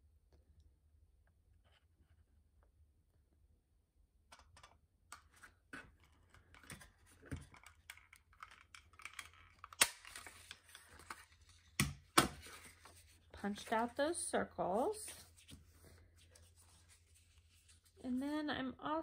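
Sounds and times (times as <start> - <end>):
paper rustling: 10.1 - 13.9, 15.0 - 18.0.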